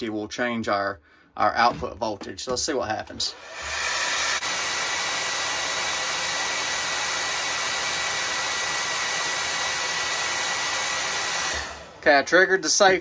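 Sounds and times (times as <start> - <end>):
hair dryer running: 3.2 - 12.9.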